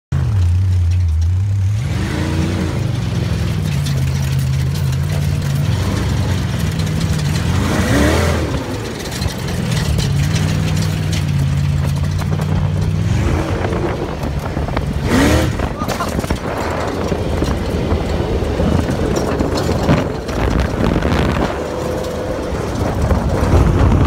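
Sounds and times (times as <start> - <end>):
dune buggy engine droning: 0.1 - 24.0
engine revving: 0.1 - 24.0.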